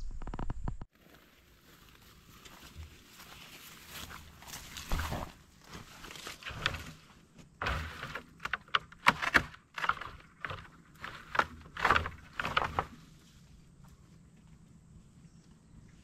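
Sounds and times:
steps through dry grass: 0.9s - 8.2s, 10.9s - 15.0s.

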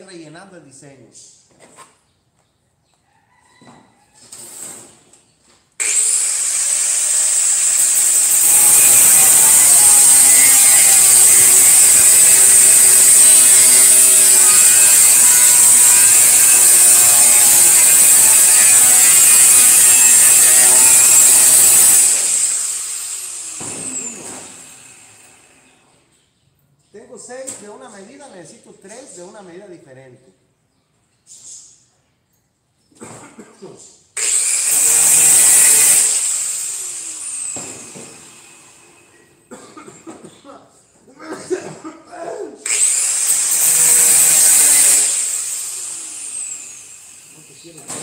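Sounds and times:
grinder spinning down: 5.8s - 25.5s, 34.2s - 38.9s, 42.6s - 47.7s
angle grinder cutting sheet metal: 5.8s - 25.7s, 34.2s - 39.2s, 42.6s - 48.0s.

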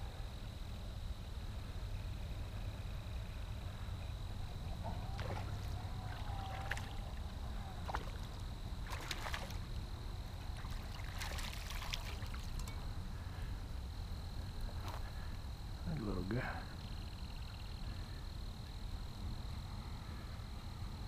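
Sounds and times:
steady low rumble: 0.0s - 21.0s
fish splashing at surface: 5.2s - 7.1s, 7.8s - 9.6s, 10.6s - 12.6s.

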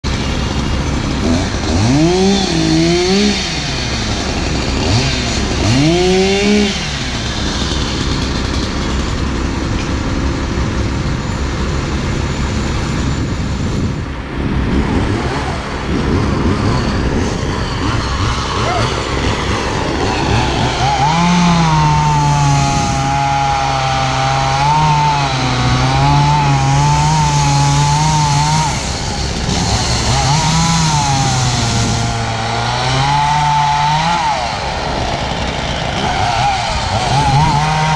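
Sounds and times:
engine revving: 0.0s - 9.8s, 12.3s - 37.9s
machinery rumble: 0.1s - 24.6s.

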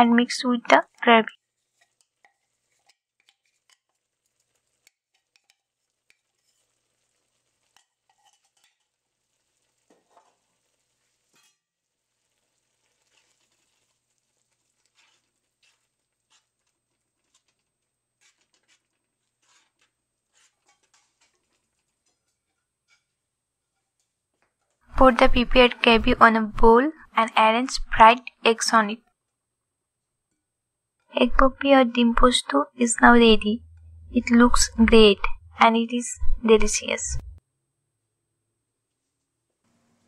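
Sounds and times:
spatula scraping frying pan: 0.7s - 25.0s.

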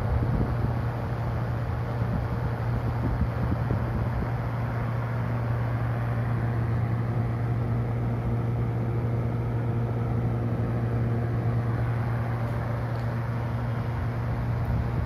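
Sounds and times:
exhaust fan motor hum: 0.0s - 15.0s.

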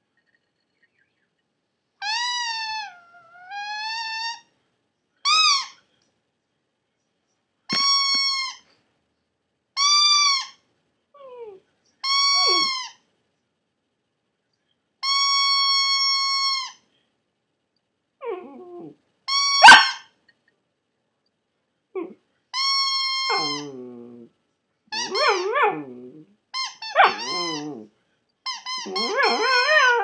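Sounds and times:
puppy howling: 2.0s - 4.4s, 12.4s - 12.9s, 18.2s - 19.0s, 22.0s - 22.2s, 23.1s - 24.3s, 24.9s - 27.9s, 28.8s - 30.0s.

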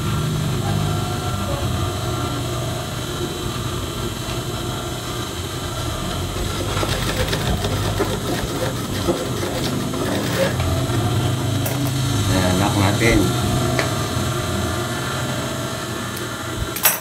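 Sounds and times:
sewing machine stitching: 6.3s - 12.0s.

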